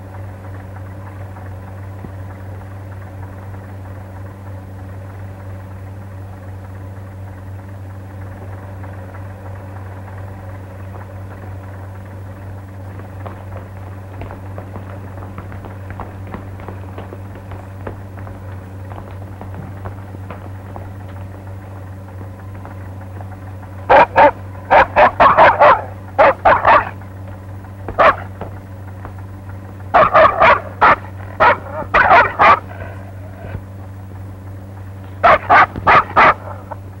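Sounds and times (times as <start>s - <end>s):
steady low hum: 0.0s - 37.0s
dog barking aggressively: 12.9s - 23.1s, 23.8s - 33.6s, 35.0s - 37.0s.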